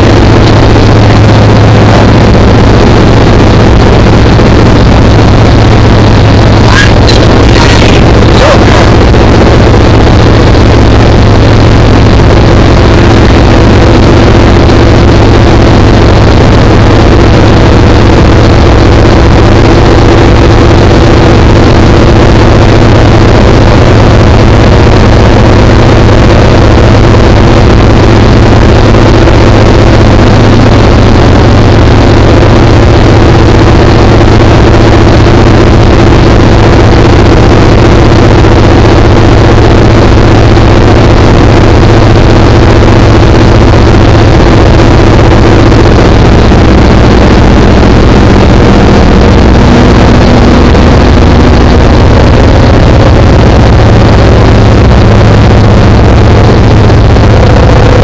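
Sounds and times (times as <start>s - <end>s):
rushing air noise: 0.0s - 16.6s, 44.6s - 58.0s
aircraft engine drone in cabin: 0.0s - 58.0s.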